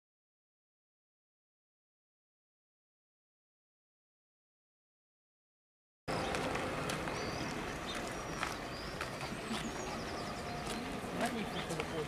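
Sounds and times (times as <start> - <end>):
small birds chirping: 6.1 - 12.0.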